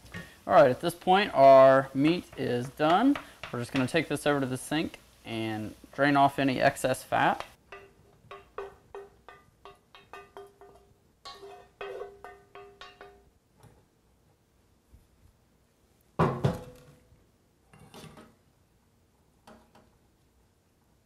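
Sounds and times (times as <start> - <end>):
wooden spoon knocking skillet: 0.0 - 13.4
metal skillet clank: 7.7 - 13.3.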